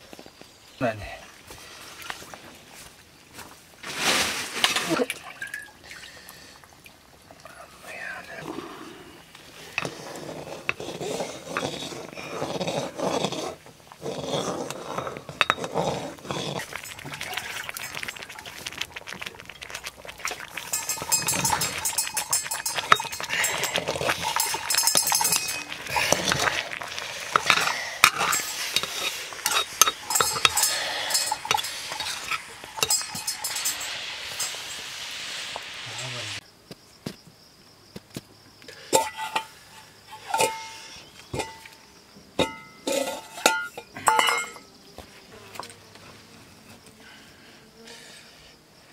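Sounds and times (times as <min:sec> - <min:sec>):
metal stirrer scraping a pot: 0:09.6 - 0:36.4, 0:39.0 - 0:41.8, 0:42.4 - 0:44.6.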